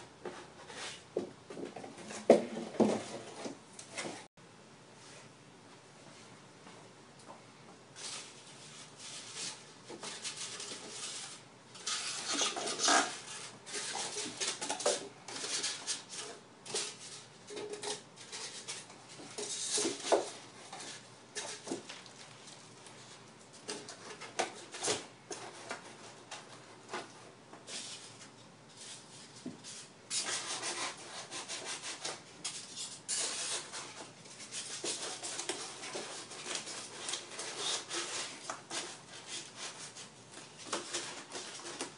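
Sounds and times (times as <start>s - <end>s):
foam rubbing against cardboard: 30.1s - 32.2s.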